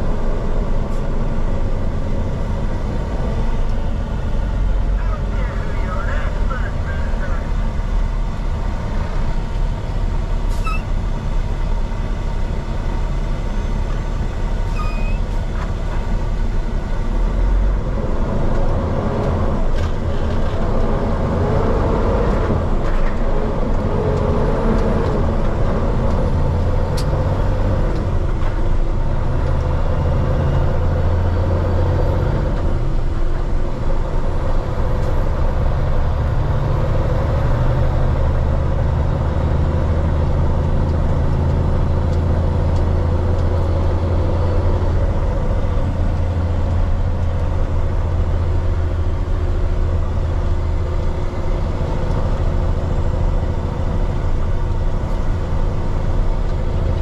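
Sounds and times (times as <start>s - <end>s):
heavy diesel engine droning: 0.0s - 57.0s
road noise: 0.0s - 57.0s.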